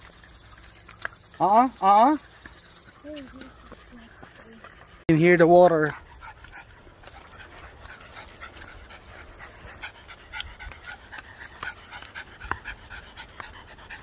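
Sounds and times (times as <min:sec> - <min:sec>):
small dogs panting: 0:02.2 - 0:05.0, 0:05.8 - 0:14.0.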